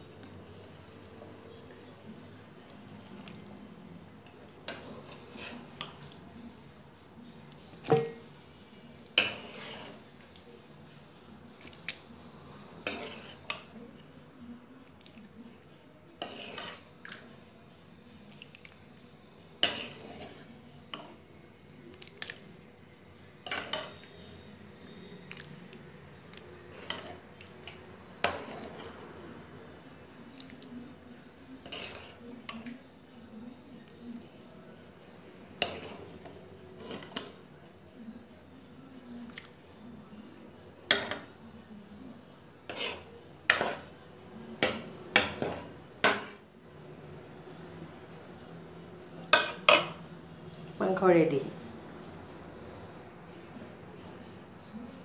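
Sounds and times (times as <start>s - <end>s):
metal spoon scraping a metal pot: 4.7s - 6.0s, 9.2s - 10.1s, 12.8s - 13.7s, 16.2s - 16.9s, 19.6s - 21.2s, 23.4s - 24.3s, 26.7s - 27.2s, 28.2s - 29.0s, 31.6s - 32.7s, 35.6s - 37.5s, 42.6s - 44.0s.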